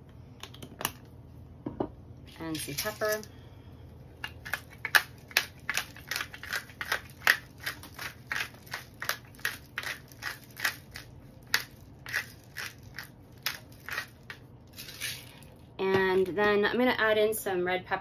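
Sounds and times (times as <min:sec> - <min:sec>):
pepper grinder cracking peppercorns: 0:02.3 - 0:03.3, 0:04.2 - 0:15.5.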